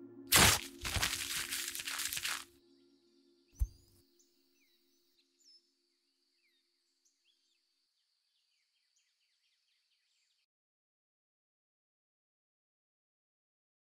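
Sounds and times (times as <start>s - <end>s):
small chirps: 0.3s - 2.4s.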